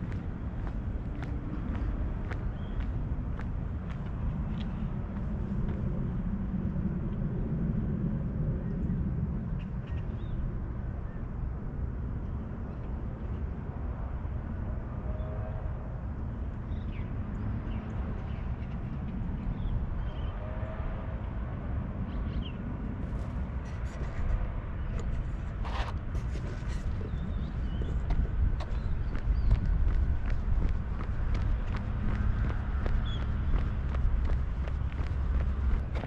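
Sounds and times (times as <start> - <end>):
low rumble: 25.0 - 36.0.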